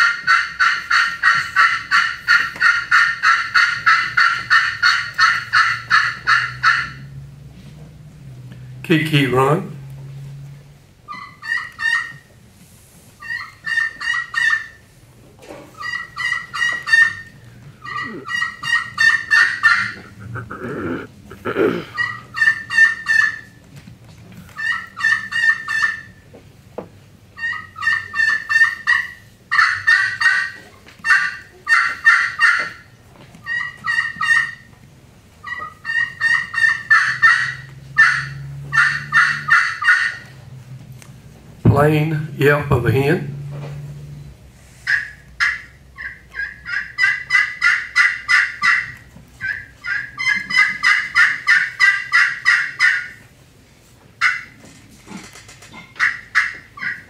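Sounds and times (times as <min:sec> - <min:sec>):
friction turkey call kee-kee runs: 0:00.0 - 0:07.2, 0:11.1 - 0:12.3, 0:13.2 - 0:14.8, 0:15.8 - 0:21.1, 0:21.9 - 0:23.6, 0:24.5 - 0:26.2, 0:27.4 - 0:34.8, 0:35.4 - 0:40.6, 0:44.8 - 0:53.3, 0:54.2 - 0:57.0.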